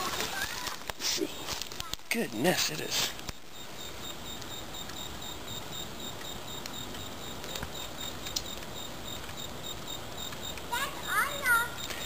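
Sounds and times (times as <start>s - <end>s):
background hiss: 0.0s - 12.0s
faint soft clicks: 7.4s - 9.4s.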